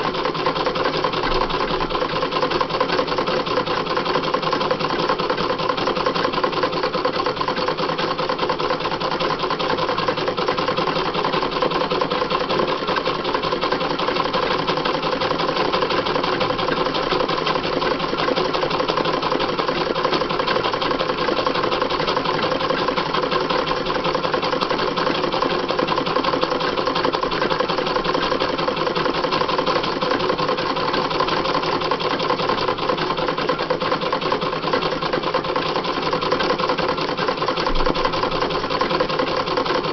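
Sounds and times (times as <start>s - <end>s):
sewing machine stitching: 0.0s - 39.9s.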